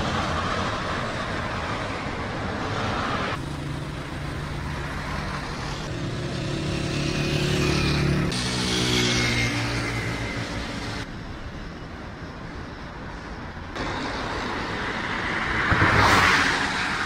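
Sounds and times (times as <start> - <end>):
cars and motorbikes driving past: 0.0 - 17.0.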